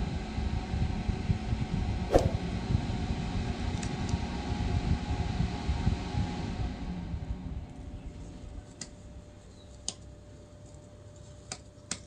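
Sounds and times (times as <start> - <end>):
falling whoosh: 2.1 - 2.6.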